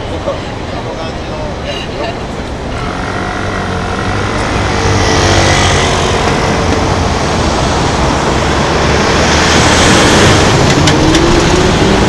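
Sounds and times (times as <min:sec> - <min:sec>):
road traffic passing: 0:00.0 - 0:12.0
truck passing close: 0:02.5 - 0:12.0.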